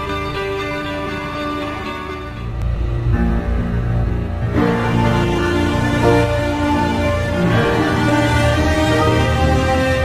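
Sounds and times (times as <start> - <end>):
music of sustained tones: 0.0 - 10.0
deep bass: 2.3 - 9.4.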